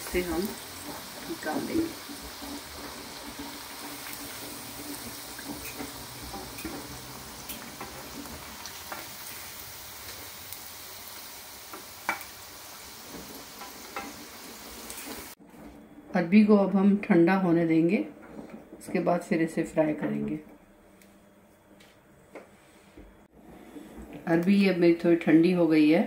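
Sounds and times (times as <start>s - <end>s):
food sizzling in oil: 0.0s - 15.4s
oil crackles: 0.0s - 15.4s.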